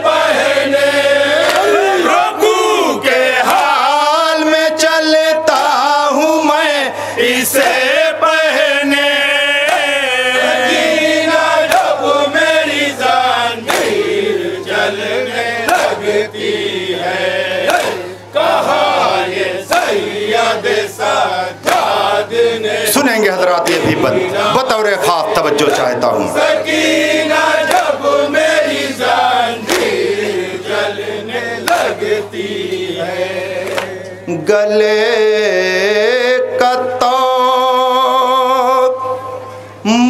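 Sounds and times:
men chanting over sound system: 0.0s - 40.0s
chest-beating slaps: 13.7s - 14.0s, 17.6s - 18.0s, 21.6s - 21.9s, 23.6s - 24.3s, 29.6s - 30.0s, 31.6s - 32.0s, 33.6s - 34.0s.

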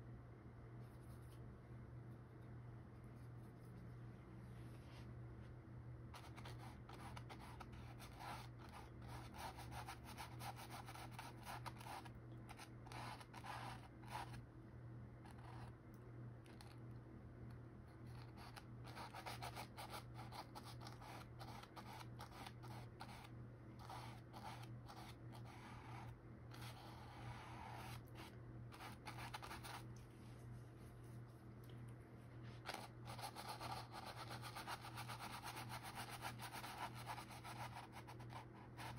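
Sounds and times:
paintbrush scratching on canvas: 18.0s - 29.9s, 32.4s - 38.9s.

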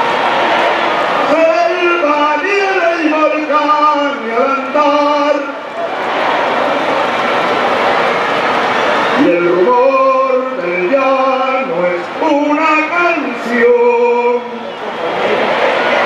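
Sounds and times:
crowd noise: 0.0s - 16.0s
person singing through a pa: 9.2s - 14.6s.

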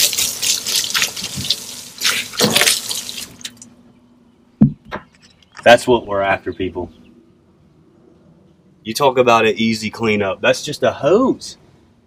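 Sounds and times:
hose spraying water on boat deck: 0.0s - 3.5s.

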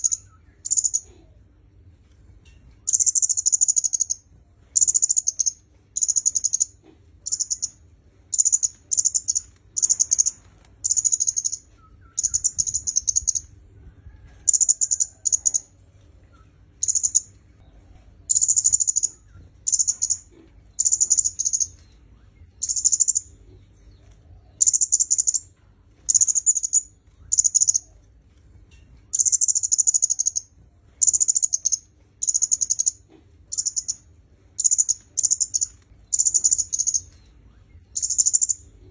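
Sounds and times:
bird high-pitched chattering call: 0.0s - 1.3s, 2.9s - 13.5s, 16.8s - 17.4s, 18.3s - 21.8s, 22.6s - 23.4s, 24.6s - 25.5s, 26.1s - 27.9s, 29.1s - 37.2s, 37.9s - 38.9s.

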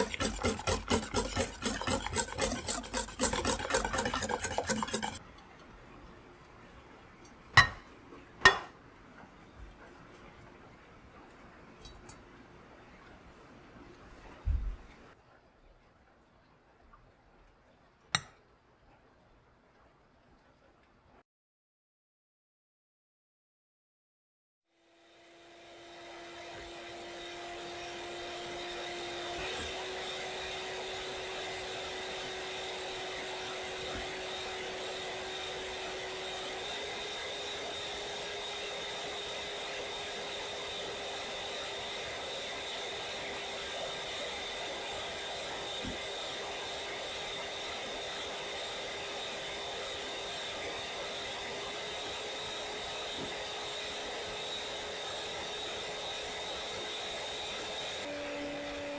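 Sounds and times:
electric hand mixer whining: 0.0s - 5.2s, 25.1s - 58.9s.

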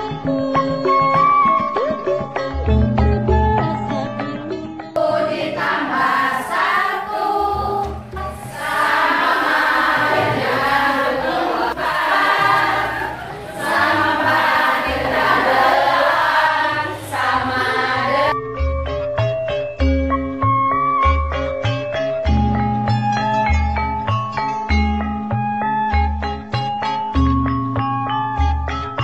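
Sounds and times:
group singing: 5.0s - 18.4s.

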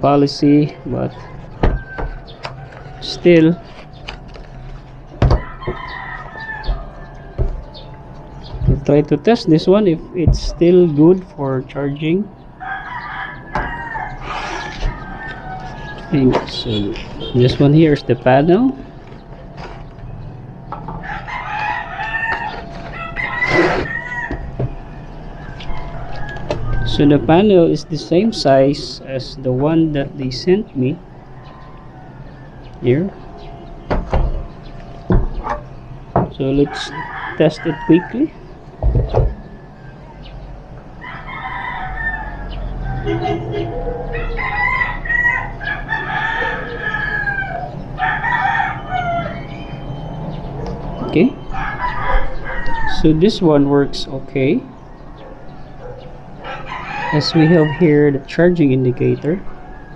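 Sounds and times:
rooster crowing: 1.0s - 3.9s, 5.2s - 8.8s, 12.4s - 17.7s, 20.8s - 33.8s, 36.4s - 38.5s, 39.3s - 50.2s, 51.0s - 53.5s, 54.4s - 59.9s.

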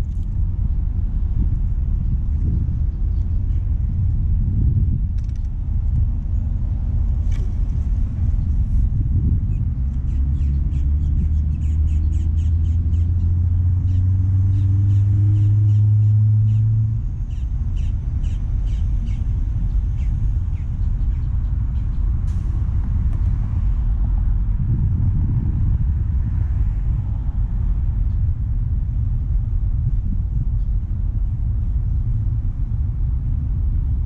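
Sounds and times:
road traffic rumbling: 0.0s - 34.0s
vehicle engine revving: 6.8s - 34.0s
bird chirping: 10.0s - 16.7s.

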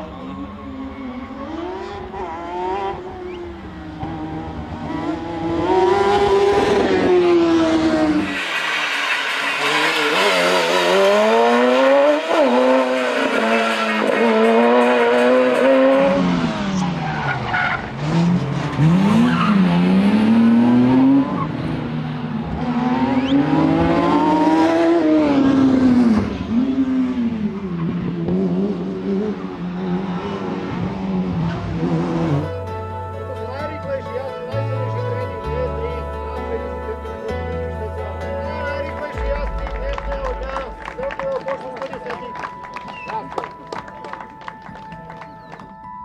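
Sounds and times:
engine revving high: 1.3s - 8.3s, 9.3s - 17.1s, 17.9s - 27.5s.

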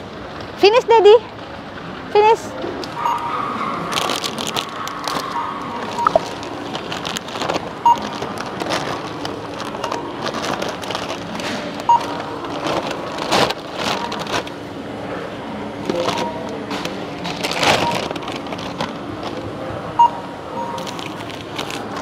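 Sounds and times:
plastic bags rustling: 3.7s - 14.8s, 15.9s - 19.6s, 20.7s - 22.0s
barcode scanner beeping: 5.3s - 6.4s, 7.8s - 8.1s, 20.0s - 21.0s.

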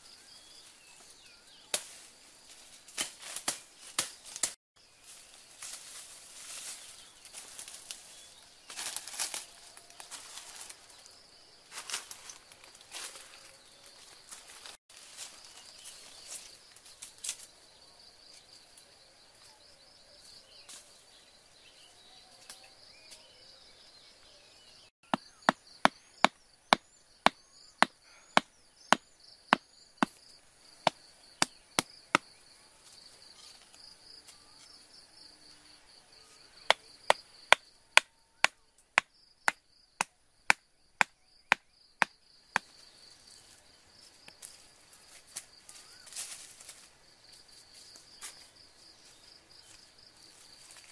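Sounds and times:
stone pounding wooden stake: 25.0s - 30.2s, 36.7s - 42.7s.

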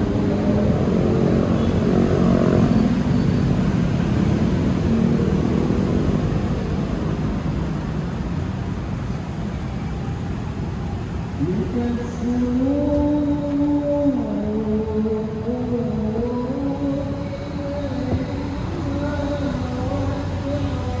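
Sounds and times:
vehicle engine passing: 0.0s - 8.4s
low traffic rumble: 0.0s - 21.0s.

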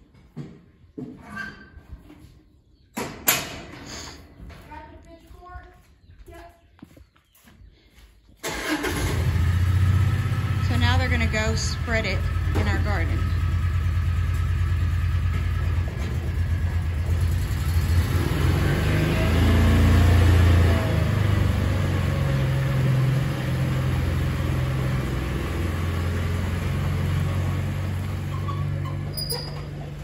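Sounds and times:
utility vehicle engine running: 8.4s - 30.0s.

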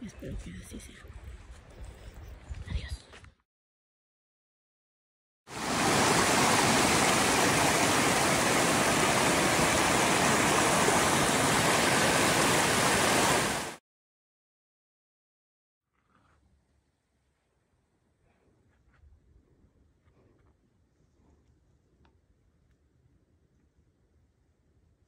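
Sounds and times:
river rushing over rocks: 5.5s - 13.8s.

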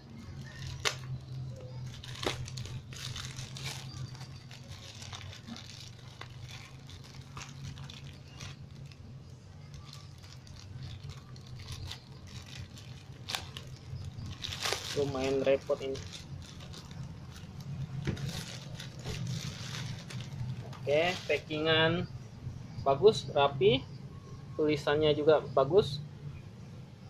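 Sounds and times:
plastic bag crinkling: 0.0s - 21.6s
steady low hum: 0.0s - 27.0s.

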